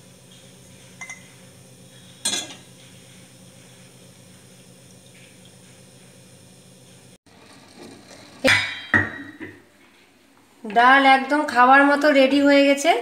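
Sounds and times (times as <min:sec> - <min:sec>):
metal lid clanking on saucepan: 0:02.2 - 0:02.6.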